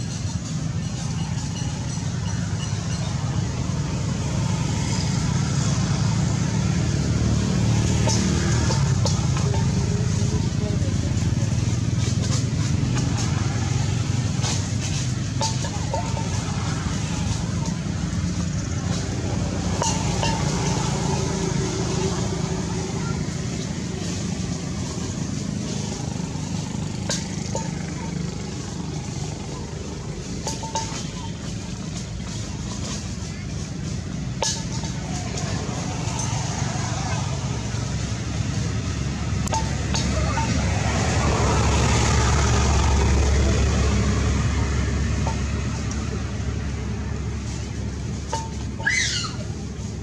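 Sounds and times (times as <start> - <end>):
motor engine rumbling: 0.0 - 50.0.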